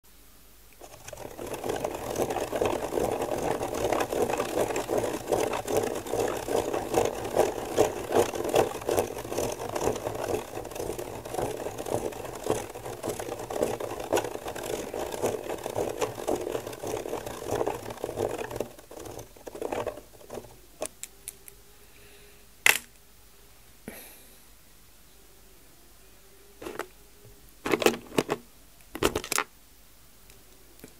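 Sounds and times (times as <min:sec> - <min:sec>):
plastic gear teeth clicking: 0:00.8 - 0:21.6.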